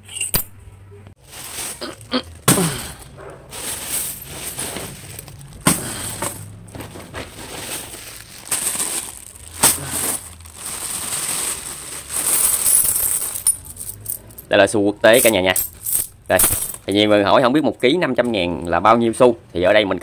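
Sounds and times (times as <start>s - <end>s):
sharp coin clinks: 0.0s - 0.6s, 15.2s - 16.9s
plastic bag crinkling: 1.2s - 2.8s, 3.5s - 14.0s
coins jingling: 3.5s - 6.6s, 7.5s - 17.0s.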